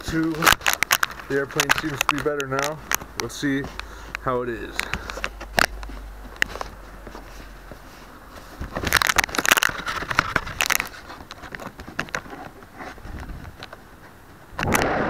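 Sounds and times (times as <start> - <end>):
handling clicks: 0.0 - 6.8.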